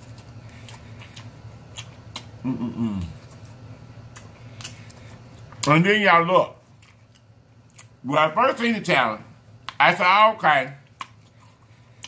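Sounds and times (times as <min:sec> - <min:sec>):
person humming mmm: 0:02.4 - 0:03.3.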